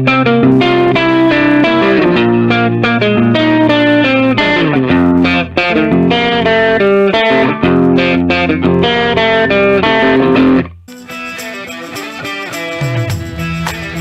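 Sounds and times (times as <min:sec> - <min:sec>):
upbeat electric guitar music: 0:00.0 - 0:14.0.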